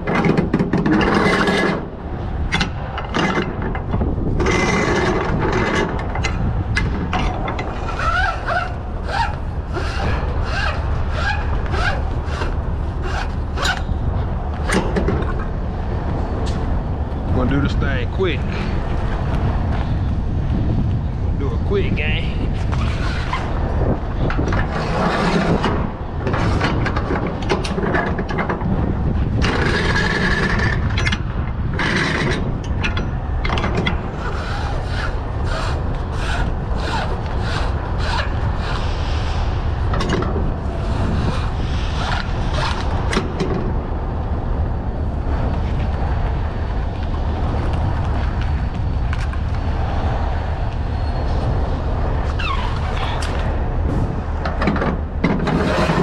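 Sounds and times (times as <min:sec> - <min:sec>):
strap webbing scraping on metal: 0:07.1 - 0:15.4, 0:22.5 - 0:28.2, 0:33.8 - 0:43.2.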